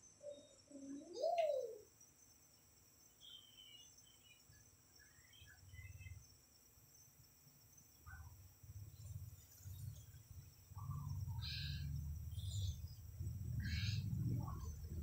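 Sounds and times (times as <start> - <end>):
crickets droning: 0.0 - 15.0
faint low rumbles: 7.9 - 15.0.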